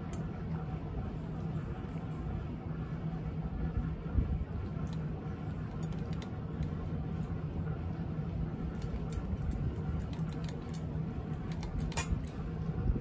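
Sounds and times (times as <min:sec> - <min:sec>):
steady low hum: 0:00.0 - 0:13.0
cat crunching dry kibble: 0:04.7 - 0:06.8, 0:08.6 - 0:12.4.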